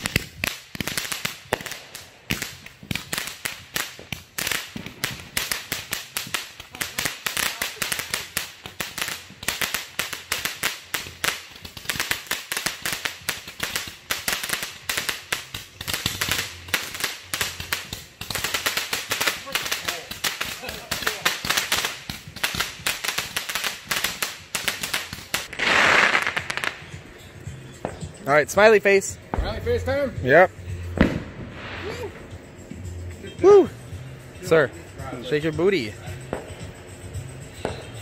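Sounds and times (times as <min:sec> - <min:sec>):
firework crackling pops: 0:00.0 - 0:27.0, 0:30.9 - 0:32.6.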